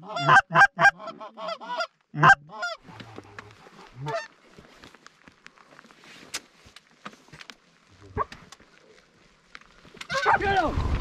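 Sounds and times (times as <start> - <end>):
goose call honks and clucks: 0.0 - 4.3, 10.0 - 10.5.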